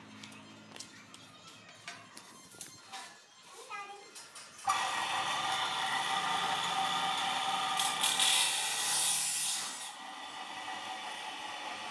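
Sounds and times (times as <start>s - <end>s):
power tool whirring: 4.6s - 11.9s.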